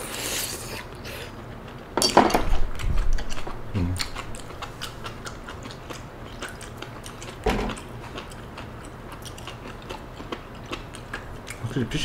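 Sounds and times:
person chewing food: 2.7s - 11.7s.

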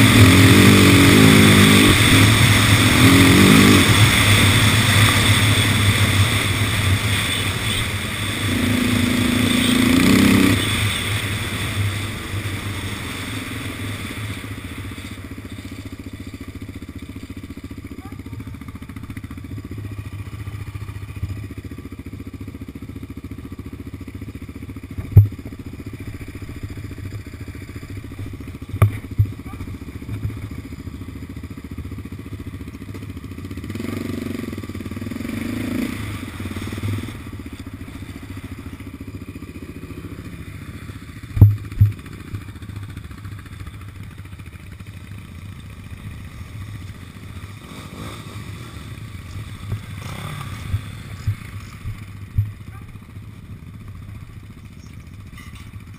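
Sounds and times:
quad engine idling: 0.0s - 55.9s
sharp knocks: 41.4s - 42.0s.

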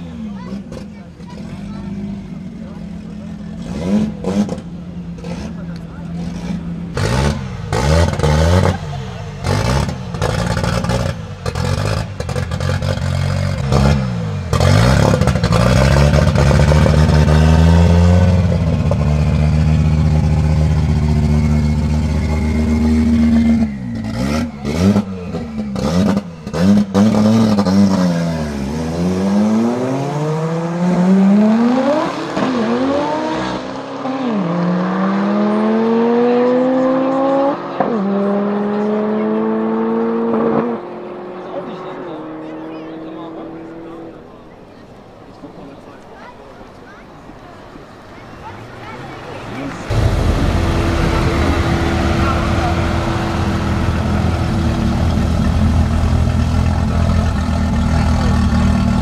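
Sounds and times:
car engine revving: 0.0s - 45.1s, 48.8s - 59.0s
sharp exhaust bangs: 49.9s - 59.0s.

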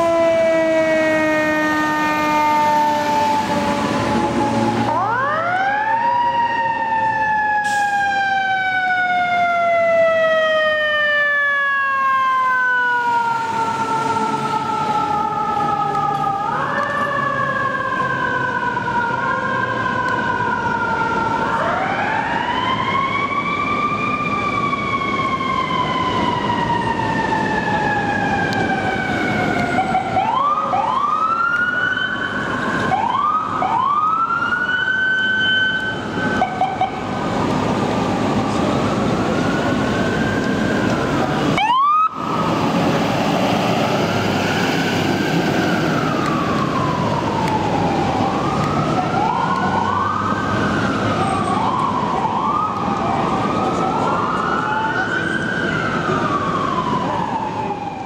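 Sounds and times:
fire truck siren wailing: 0.0s - 58.0s.

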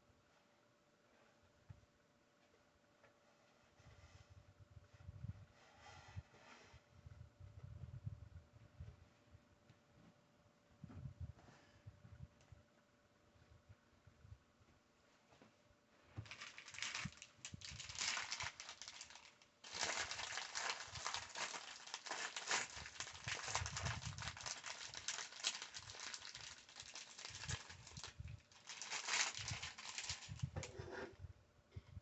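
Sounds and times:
soft low thumps: 10.7s - 12.6s
plastic bag crinkling: 16.2s - 30.8s.

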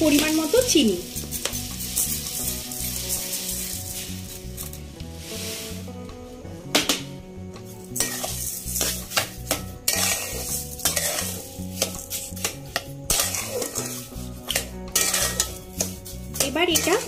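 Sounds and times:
spatula scraping a pan: 0.0s - 5.8s, 7.8s - 17.0s.

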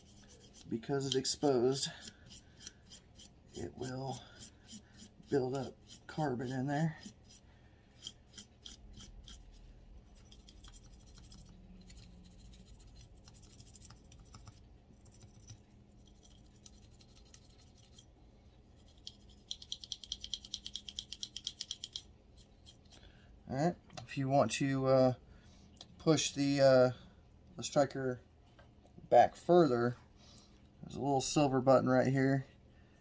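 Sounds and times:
brush scrubbing metal: 0.0s - 18.0s.

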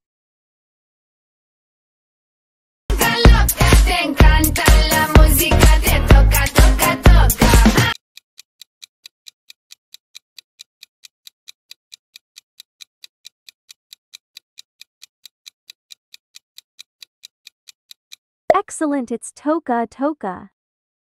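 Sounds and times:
rapid clock ticks: 3.3s - 18.2s.

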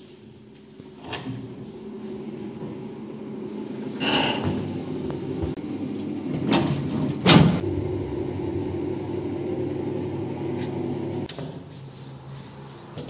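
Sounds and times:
lift car hum: 1.8s - 11.3s
lift doors closing thud: 6.4s - 8.0s.

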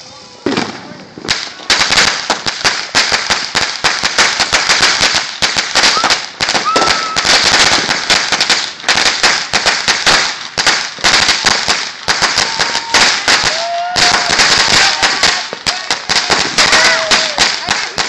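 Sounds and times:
firecrackers crackling: 0.0s - 18.0s.

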